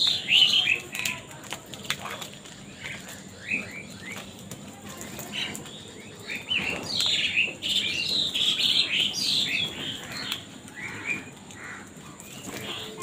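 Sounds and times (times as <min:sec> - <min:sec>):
crows cawing: 0:09.8 - 0:13.0.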